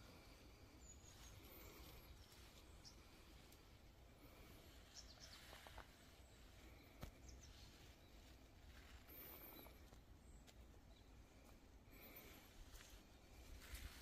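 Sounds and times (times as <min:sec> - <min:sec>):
dry leaves rustling: 0:12.0 - 0:14.0.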